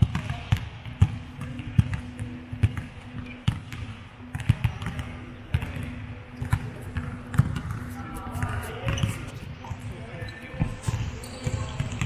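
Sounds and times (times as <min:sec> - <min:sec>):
basketball bouncing on floor: 0:00.0 - 0:09.3.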